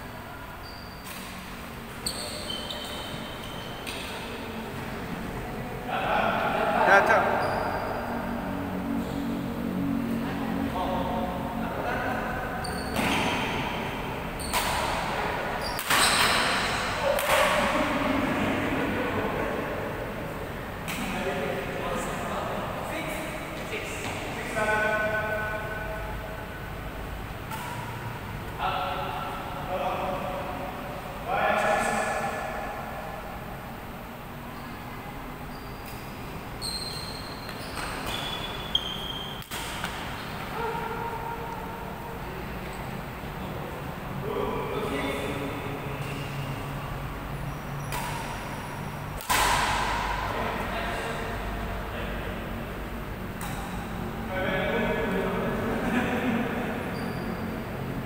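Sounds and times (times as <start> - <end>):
shoes squeaking on court floor: 0.6 - 4.4, 7.2 - 8.1, 12.6 - 17.6, 34.5 - 40.8, 45.0 - 49.0, 56.8 - 57.6
rackets hitting shuttlecock: 14.4 - 17.9, 27.4 - 28.1, 39.3 - 40.5, 47.8 - 50.3, 53.3 - 54.0.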